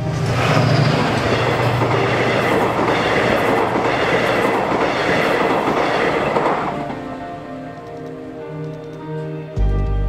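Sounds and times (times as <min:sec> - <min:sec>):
train passing at speed: 0:00.0 - 0:09.0.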